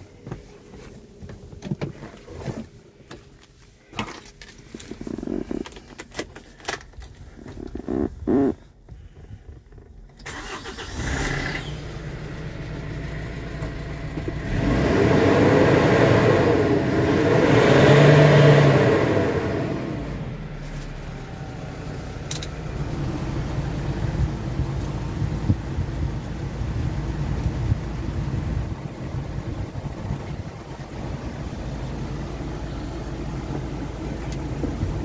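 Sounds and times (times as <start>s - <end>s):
truck engine starting with key: 9.8s - 11.8s, 22.2s - 22.7s
engine revving: 10.3s - 20.4s
truck engine idling: 20.3s - 35.0s.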